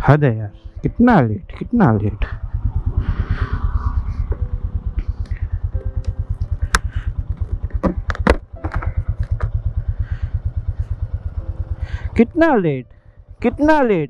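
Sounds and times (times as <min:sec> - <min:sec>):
motorcycle engine idling: 0:04.2 - 0:14.0.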